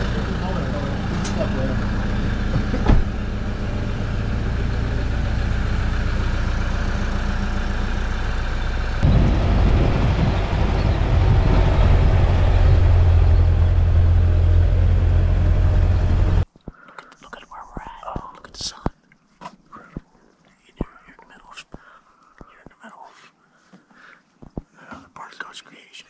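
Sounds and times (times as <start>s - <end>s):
strong low hum: 0.0s - 16.5s
vehicle engine idling: 0.0s - 16.5s.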